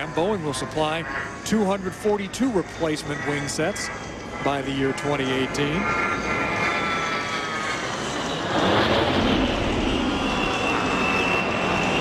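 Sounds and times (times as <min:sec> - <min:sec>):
high jet whine: 0:00.0 - 0:12.0
jet engines passing: 0:00.0 - 0:12.0.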